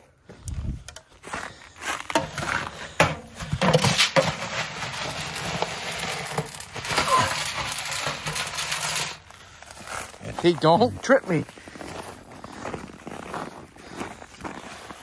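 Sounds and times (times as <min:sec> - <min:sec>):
pellets rattling against metal: 0:02.2 - 0:09.4
scoop digging into feed pellets: 0:04.0 - 0:09.2.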